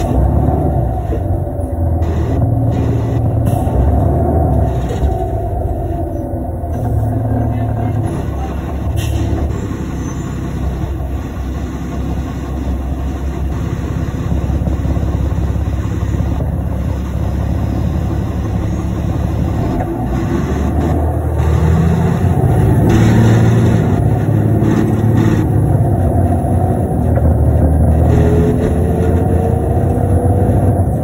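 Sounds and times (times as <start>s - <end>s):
bus diesel engine droning: 0.0s - 31.0s.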